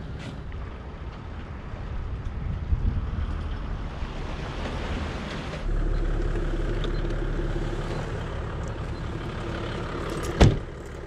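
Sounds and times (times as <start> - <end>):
engine droning: 3.4 - 11.0.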